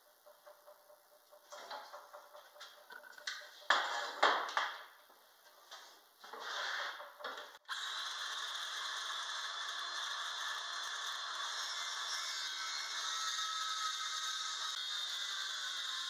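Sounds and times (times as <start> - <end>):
wood and tools clattering: 1.3 - 7.6
cordless power tool whirring: 7.6 - 16.0.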